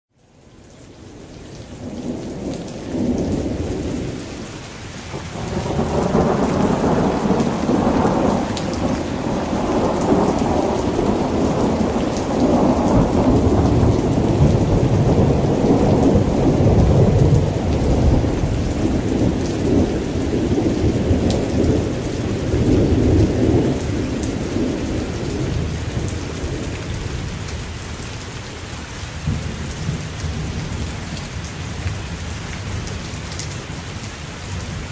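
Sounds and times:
steady rain: 0.1s - 34.9s
rolling thunder: 5.1s - 27.4s.

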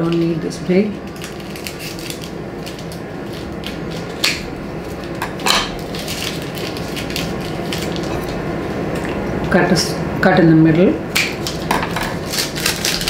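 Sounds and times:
paper crinkling: 1.1s - 5.2s, 5.8s - 8.4s, 11.4s - 13.0s.

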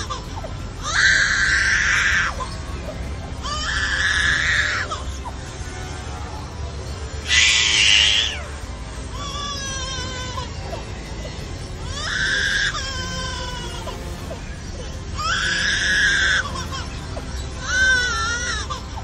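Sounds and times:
bird mimicking crying baby: 0.0s - 2.6s, 9.1s - 14.0s.

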